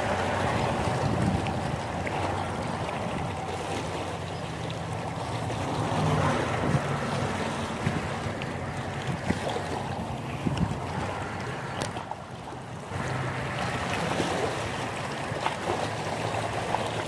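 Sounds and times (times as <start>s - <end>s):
wind buffeting microphone: 0.0s - 3.7s, 5.4s - 12.1s
waves lapping on rocks: 0.0s - 17.0s.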